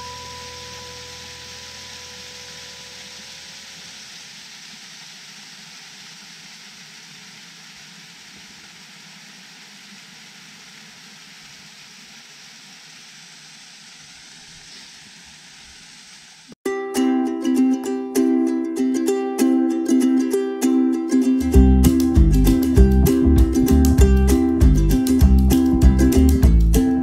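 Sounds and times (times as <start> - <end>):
creek rushing under ice: 0.0 - 16.6.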